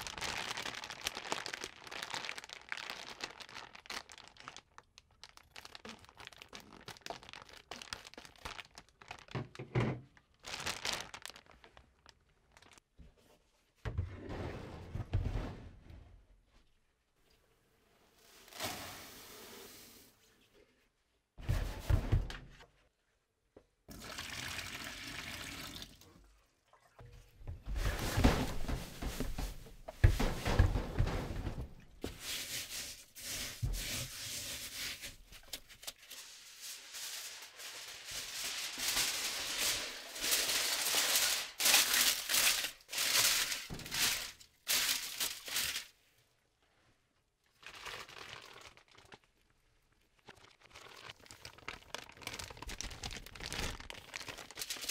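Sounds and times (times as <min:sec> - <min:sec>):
granules rustling under hand: 0:10.2 - 0:12.8, 0:27.6 - 0:46.0, 0:50.2 - 0:54.9
granules pouring into plastic tub: 0:38.0 - 0:45.9.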